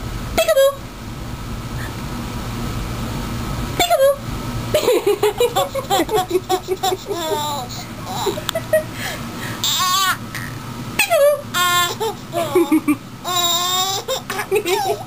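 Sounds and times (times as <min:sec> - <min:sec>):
baby laughing and squealing: 0:05.5 - 0:08.5, 0:09.6 - 0:15.0.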